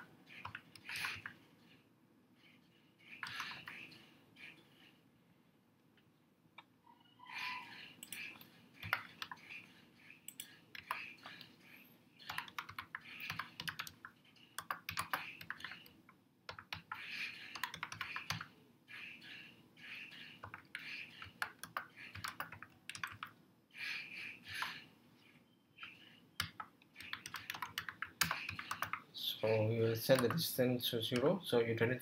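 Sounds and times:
computer keyboard typing: 0.0s - 1.4s, 3.2s - 3.9s, 8.0s - 9.6s, 10.3s - 11.5s, 12.2s - 15.9s, 16.5s - 18.5s, 20.2s - 23.4s, 25.8s - 29.0s, 30.1s - 30.4s.

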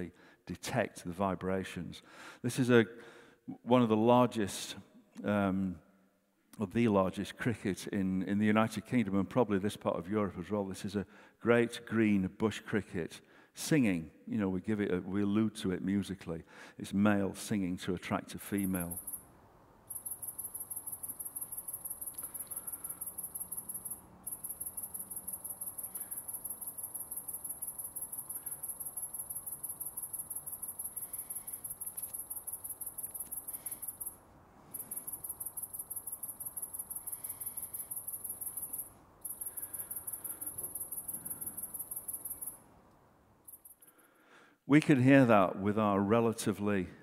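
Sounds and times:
bush cricket stridulating: 18.5s - 42.6s.

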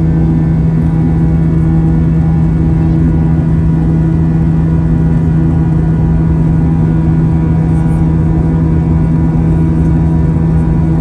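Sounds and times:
jet engines droning in cabin: 0.0s - 11.0s.

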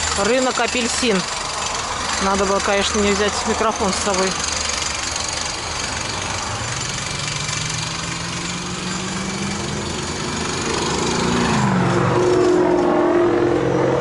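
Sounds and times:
road traffic: 0.0s - 14.0s
vehicle passing close: 1.1s - 14.0s.

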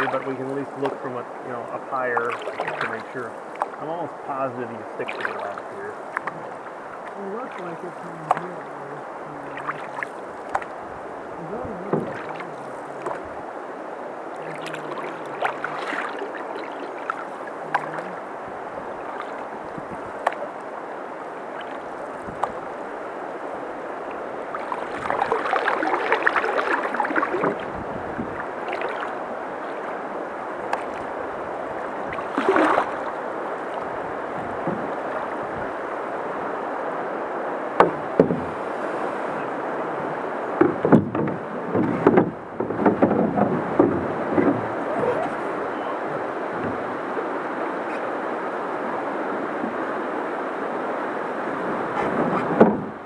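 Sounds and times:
paddle strokes: 0.0s - 53.0s
water splashing along canoe hull: 0.0s - 53.0s
sharp knocks: 37.8s - 38.6s, 40.6s - 44.7s.

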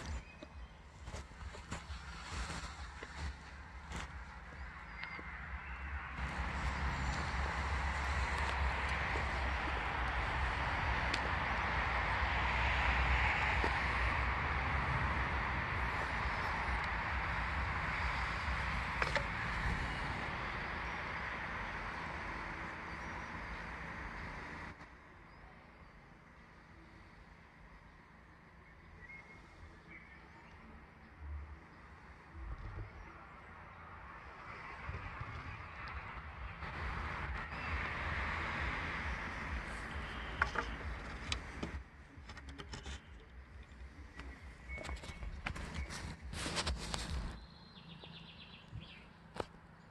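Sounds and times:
footsteps crunching dry leaves: 0.0s - 5.4s, 6.2s - 18.8s, 44.9s - 47.6s
low microphone rumble: 0.0s - 24.8s, 32.2s - 42.3s
faint bird chirps: 0.0s - 49.3s
wooden bow clicks and knocks: 40.3s - 45.8s.

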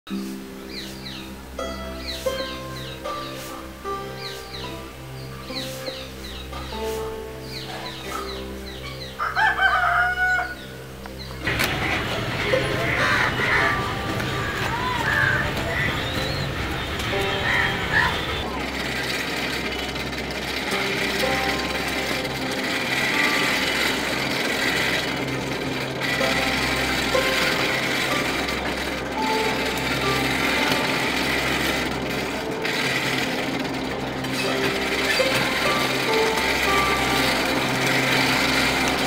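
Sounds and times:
feathers being plucked: 0.1s - 4.8s
background music: 0.1s - 39.0s
noisy background: 0.1s - 39.0s
chicken calling: 7.4s - 10.7s, 11.4s - 19.1s.

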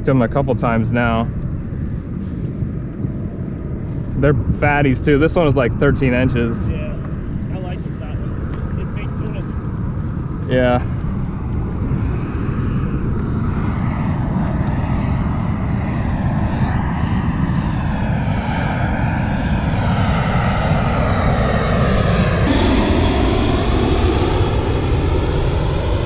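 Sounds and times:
engine drone: 0.0s - 26.0s.

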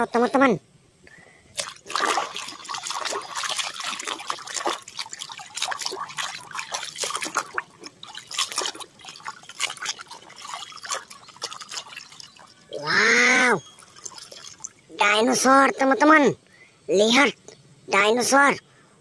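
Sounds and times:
hand sloshing through soapy water: 1.6s - 14.8s
water splashes and drips: 1.6s - 15.2s.

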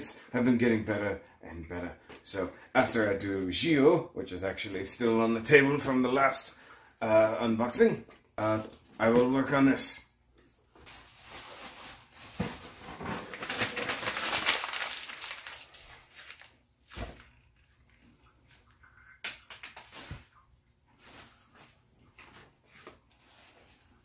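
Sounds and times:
packing material crinkling: 10.9s - 17.8s.

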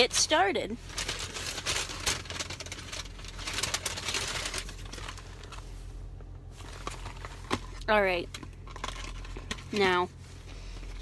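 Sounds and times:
paper packaging rustling: 0.8s - 5.7s, 6.5s - 7.8s.

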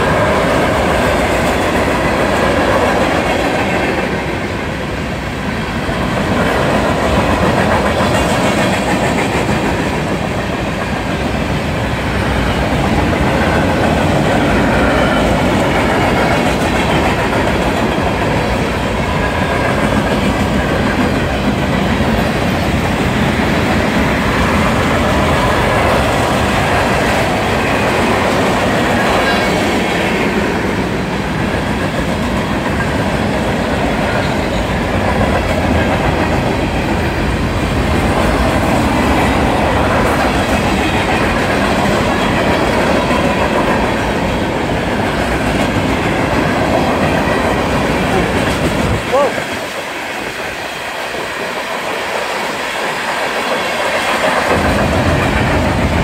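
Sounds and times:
freight train wheels rattling: 0.0s - 56.0s.

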